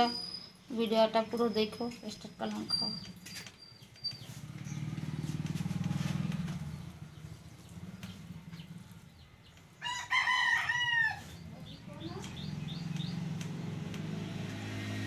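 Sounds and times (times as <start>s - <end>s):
motor engine running: 4.2s - 9.6s, 11.4s - 15.0s.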